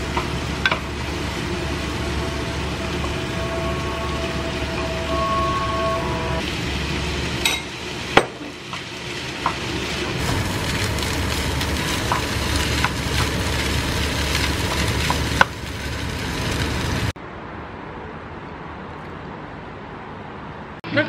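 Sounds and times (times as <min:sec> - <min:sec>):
rice sizzling in a frying pan: 0:00.0 - 0:04.7, 0:06.0 - 0:17.2.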